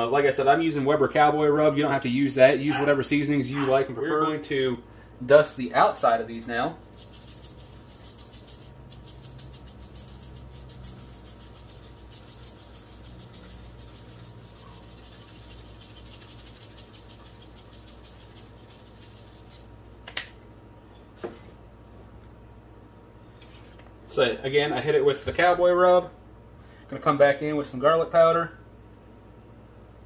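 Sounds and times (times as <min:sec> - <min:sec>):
seasoning shaker rattling: 0:06.8 - 0:20.0.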